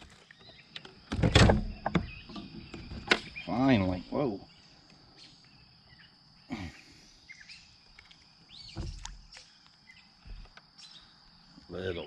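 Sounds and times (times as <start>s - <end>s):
bird chirps: 0.0s - 12.0s
insect drone: 0.0s - 12.0s
knock with rustling: 8.7s - 9.2s.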